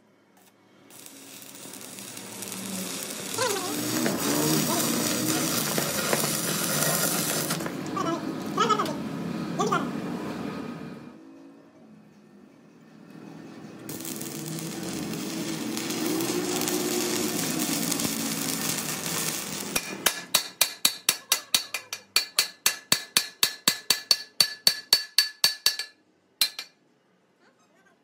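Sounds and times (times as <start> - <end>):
hammer striking steel: 19.7 - 26.8.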